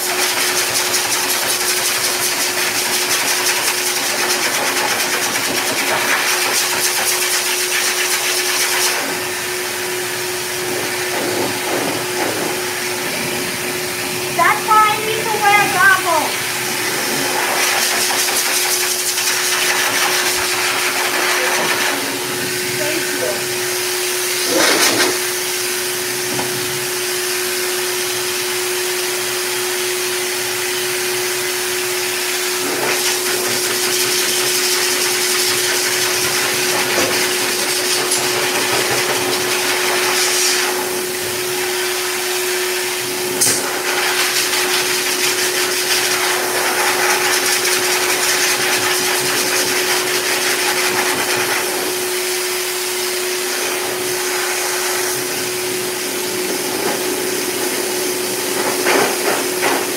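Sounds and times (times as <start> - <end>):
dog dryer blowing air: 0.0 - 59.9.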